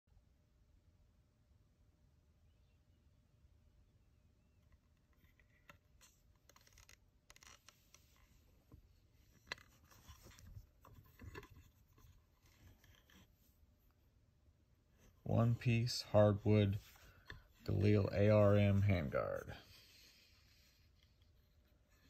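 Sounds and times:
rifle handling scrapes and rubs: 5.1 - 13.7, 14.9 - 22.0.

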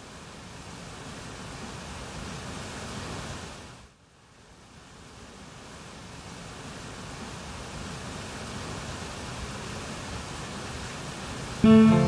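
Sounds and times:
waterfall rushing: 11.4 - 12.0.

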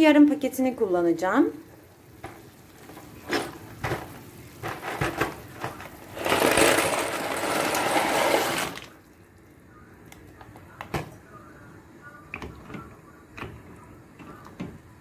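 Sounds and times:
dry pasta rattling in box: 4.6 - 8.9.

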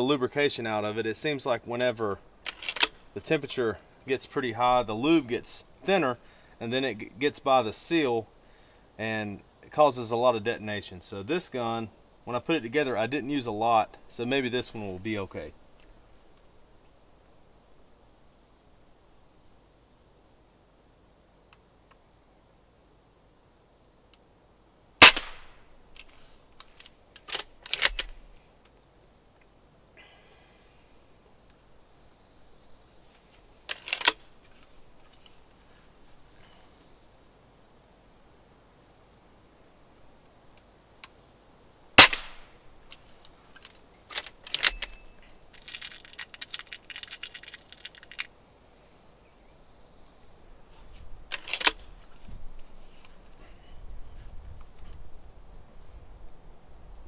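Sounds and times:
metallic clicks of rifle cocking: 1.8 - 3.1, 25.0 - 28.8, 33.7 - 34.3, 42.0 - 48.3, 51.3 - 52.0
air rifle firing crack: 25.0 - 25.6, 42.0 - 42.6.

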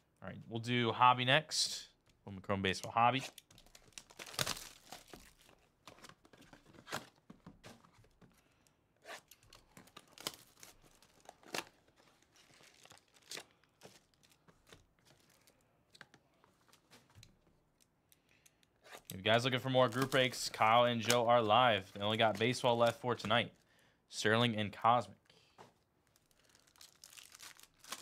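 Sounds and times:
plastic shrink wrap tearing: 3.3 - 5.6, 9.3 - 14.4, 26.1 - 28.0.

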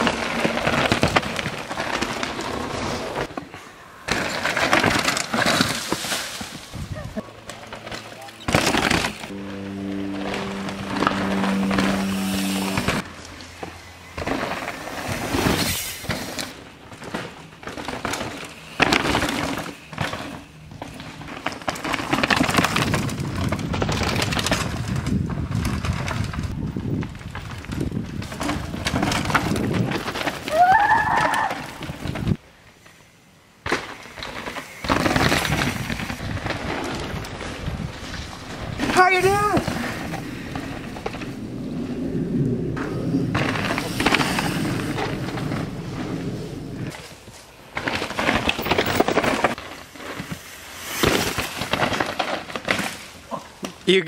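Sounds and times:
bikes clattering over rocks: 0.0 - 9.3, 12.8 - 32.9, 33.6 - 54.0
bike tyres crunching and skidding: 0.0 - 54.0.

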